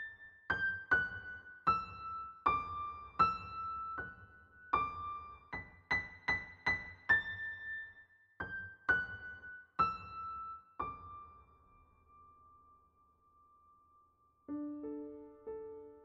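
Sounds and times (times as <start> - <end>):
slow keyboard melody: 14.5 - 16.0.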